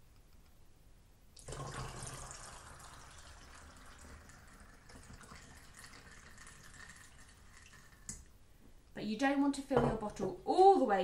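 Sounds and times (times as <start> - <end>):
water trickling through funnel: 1.4 - 8.3.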